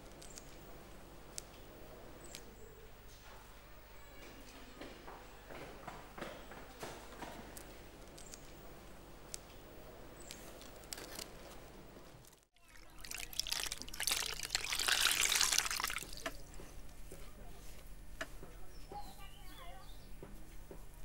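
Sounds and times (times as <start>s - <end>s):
faint water trickling: 12.6s - 16.6s
water splashing over hands: 12.7s - 16.5s.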